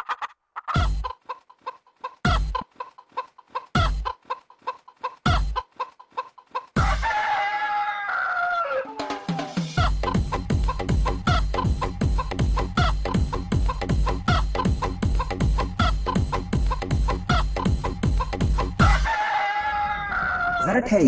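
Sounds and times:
chicken clucking: 0:00.0 - 0:20.7
rooster crowing: 0:06.8 - 0:09.5, 0:18.8 - 0:20.7
heavy beat: 0:09.0 - 0:19.0.

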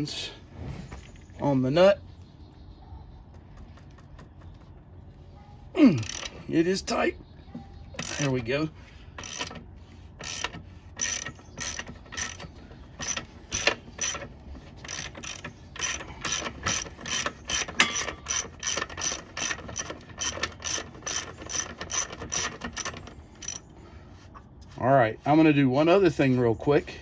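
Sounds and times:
ratchet wrench clicking: 0:06.0 - 0:06.4, 0:08.0 - 0:08.4, 0:09.2 - 0:09.6, 0:10.2 - 0:23.7.

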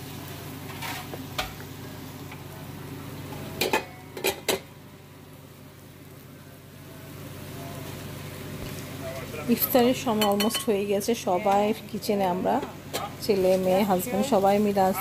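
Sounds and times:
steady low hum: 0:00.0 - 0:15.0
utensils clinking against pots: 0:03.3 - 0:04.7, 0:09.6 - 0:11.8, 0:12.5 - 0:13.8.

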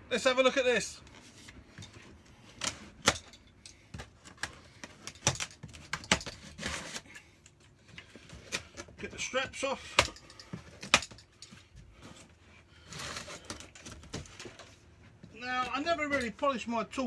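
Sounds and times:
knife cutting plastic straps: 0:02.4 - 0:07.3, 0:09.9 - 0:11.3, 0:12.8 - 0:14.6.

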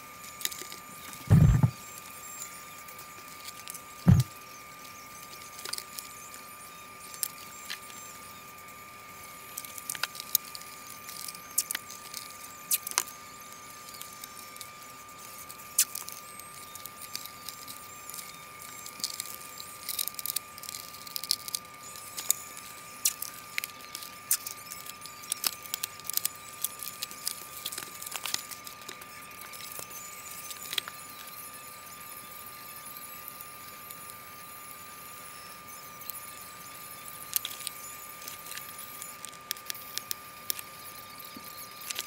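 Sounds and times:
faint steady high tone: 0:09.2 - 0:42.0.

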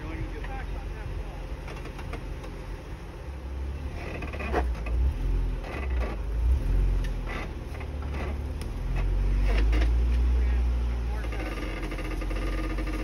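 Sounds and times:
engine working at low speed: 0:00.0 - 0:13.0
chassis creaks and tyre scrapes on rock: 0:01.6 - 0:02.3, 0:03.8 - 0:13.0.

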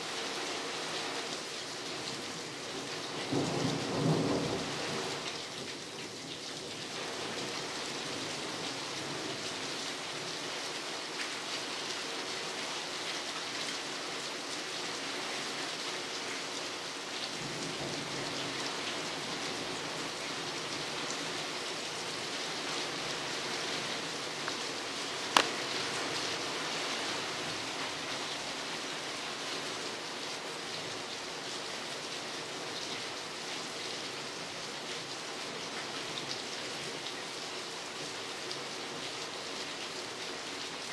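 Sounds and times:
steady rain falling: 0:00.0 - 0:40.9.

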